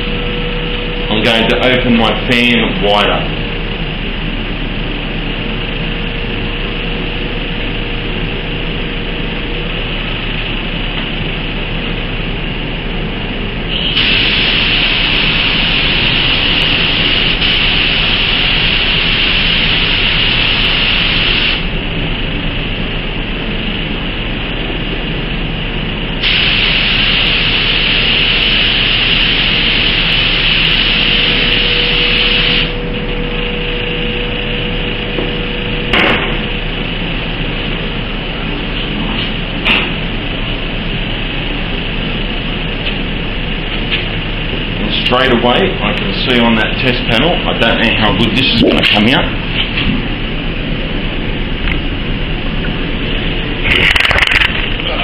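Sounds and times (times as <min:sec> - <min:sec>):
steady background noise: 0:00.0 - 0:55.0
paint spray gun hissing: 0:13.7 - 0:21.7, 0:26.2 - 0:32.7.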